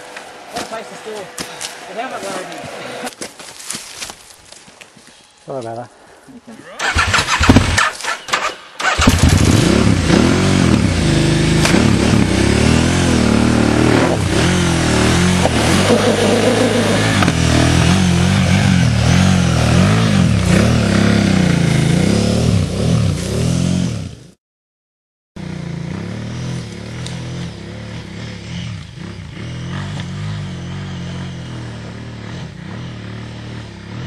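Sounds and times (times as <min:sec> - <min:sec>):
motorcycle engine revving hard: 0:06.8 - 0:24.4, 0:25.4 - 0:34.0.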